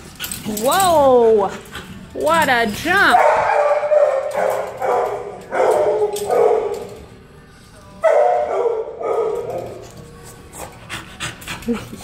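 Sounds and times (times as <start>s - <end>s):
dogs barking: 3.0s - 7.2s, 8.0s - 10.0s.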